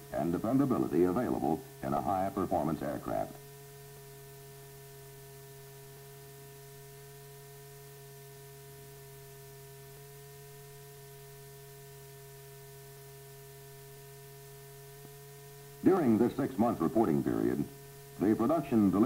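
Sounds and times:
electrical hum: 0.0s - 19.0s
light hiss: 0.0s - 19.0s.

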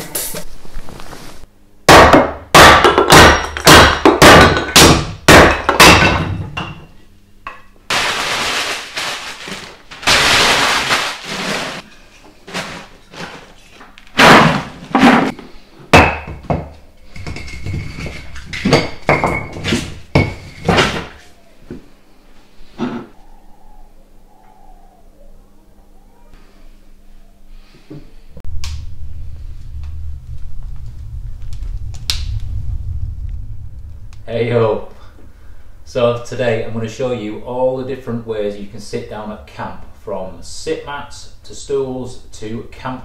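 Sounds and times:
newspaper crumpling: 7.9s - 11.8s.

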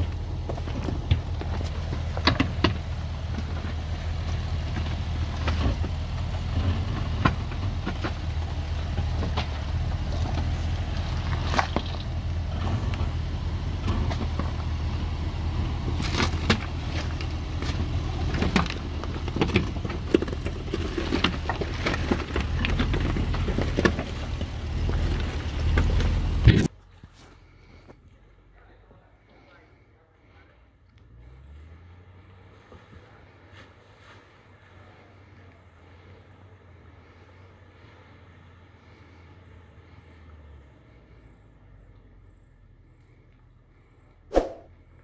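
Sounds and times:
stones crunching under tyres: 0.0s - 27.9s
engine running at low revs: 0.0s - 28.5s.

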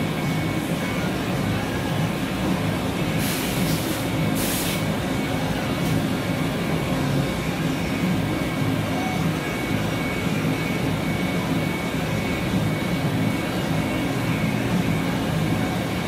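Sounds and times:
machine running with low hum: 0.0s - 16.0s
short hisses: 3.2s - 4.8s.

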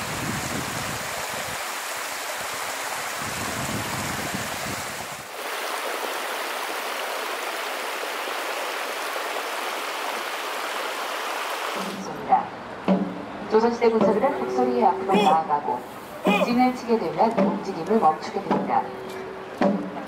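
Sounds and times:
stream water splashing over rocks: 0.0s - 12.0s.

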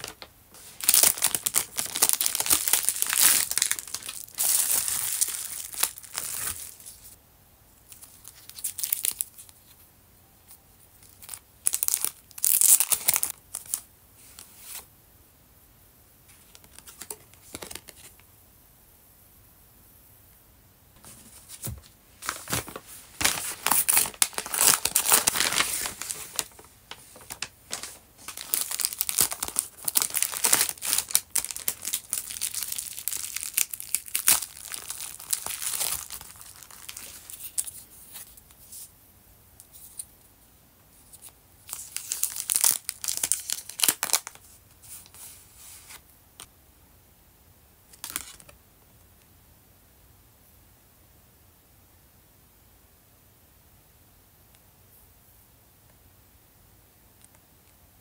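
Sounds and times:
plastic packaging crinkling: 0.0s - 7.1s, 7.9s - 9.6s, 11.0s - 13.8s, 21.6s - 38.3s, 41.2s - 45.3s.

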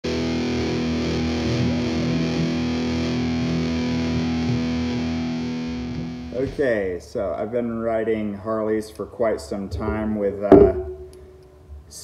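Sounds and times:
distorted electric guitar chord: 0.0s - 6.4s.

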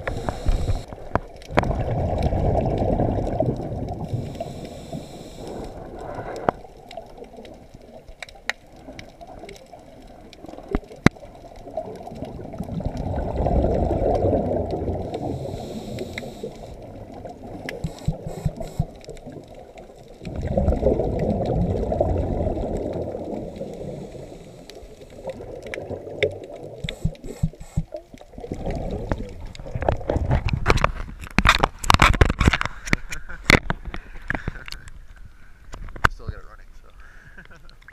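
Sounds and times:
regulator bubbles gurgling underwater: 0.0s - 31.3s
water noise: 0.0s - 37.9s
small clicks: 24.6s - 28.3s.

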